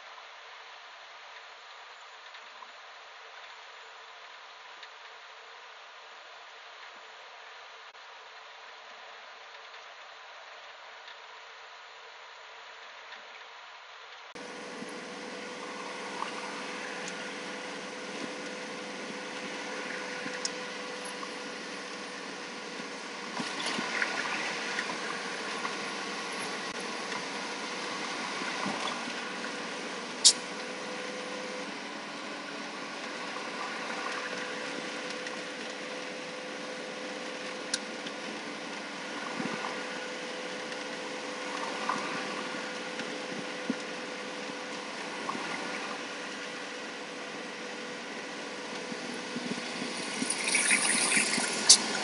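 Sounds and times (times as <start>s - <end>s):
road and engine noise in cabin: 14.3s - 52.0s
sharp click: 30.2s - 30.4s.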